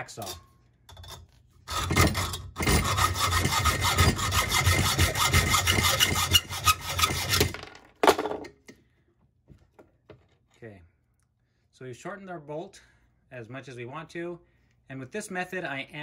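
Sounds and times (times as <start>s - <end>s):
hacksaw cutting metal: 1.0s - 7.6s.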